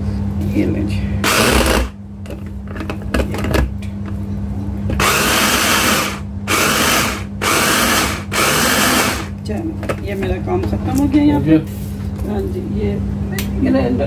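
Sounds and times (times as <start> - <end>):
electric hand blender grinding: 1.2 - 2.0, 5.0 - 9.3.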